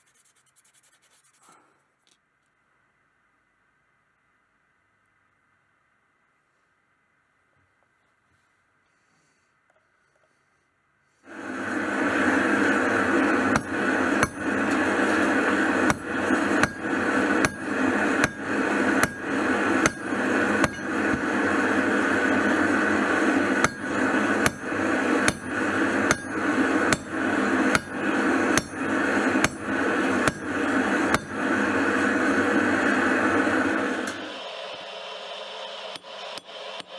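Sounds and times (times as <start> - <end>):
steady rushing noise: 11.3 - 34.0
hammer striking hot steel on anvil: 13.0 - 31.8, 35.9 - 36.9.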